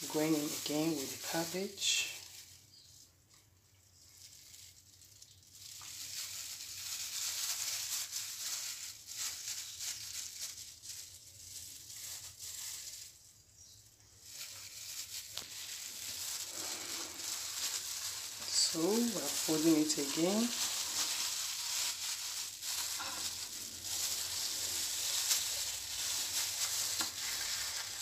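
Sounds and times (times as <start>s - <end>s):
glove and cabbage rustling: 0.0s - 28.0s.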